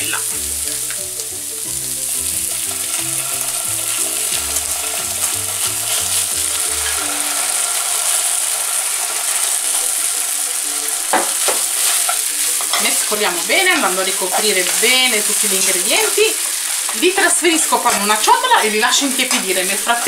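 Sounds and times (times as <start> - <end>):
vegetables sizzling in frying pan: 0.0 - 20.0
sauce spooned into pan: 0.6 - 12.8.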